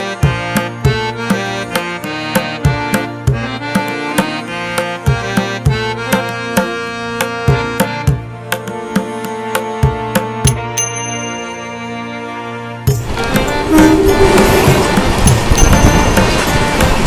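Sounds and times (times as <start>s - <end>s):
sustained melody: 10.8s - 17.0s.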